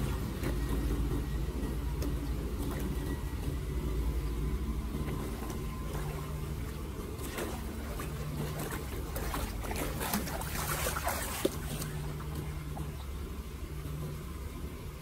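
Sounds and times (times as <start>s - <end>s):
low background noise: 0.0s - 15.0s
feet wading through splashing water: 4.9s - 13.2s.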